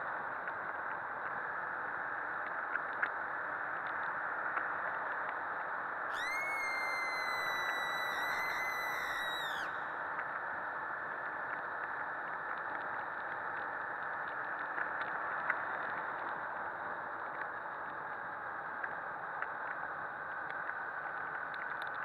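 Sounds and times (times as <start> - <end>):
faint ticks: 0.0 - 6.0, 9.9 - 22.0
high whine: 6.1 - 10.3.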